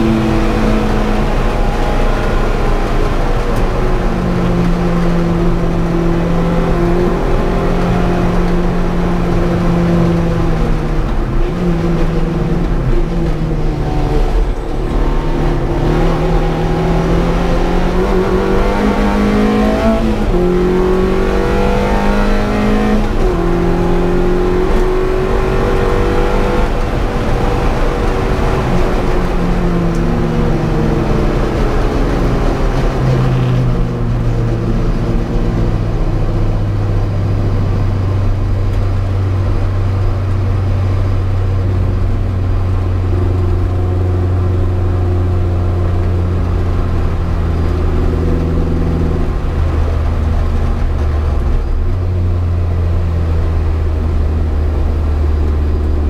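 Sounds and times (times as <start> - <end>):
car engine revving from cabin: 0.0 - 36.4.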